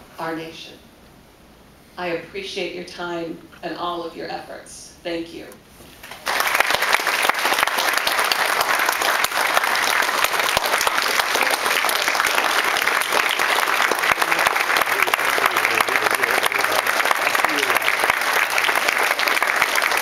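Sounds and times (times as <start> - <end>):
audience applauding: 6.0 - 20.0.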